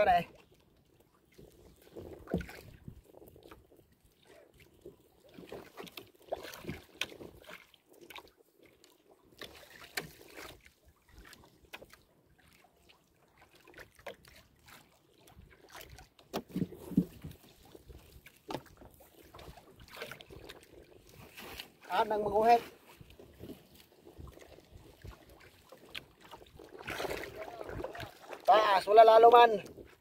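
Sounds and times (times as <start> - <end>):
net and floats rustling and clicking: 0.0 - 30.0
thumps on wooden boat: 16.3 - 17.4.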